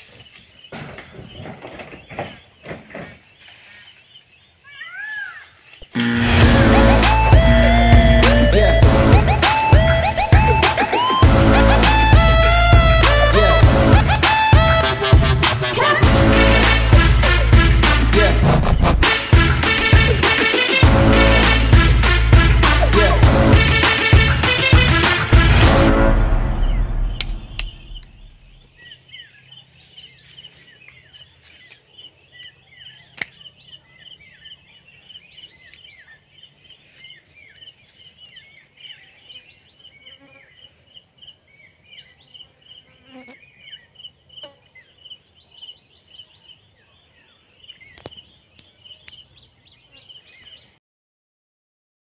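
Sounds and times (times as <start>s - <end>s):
insects chirping and trilling: 0.0s - 6.0s, 26.6s - 50.8s
background music: 6.0s - 28.0s.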